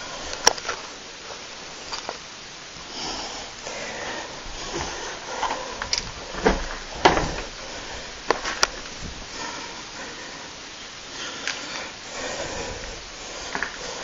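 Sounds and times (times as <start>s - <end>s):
footsteps: 4.1s - 10.4s.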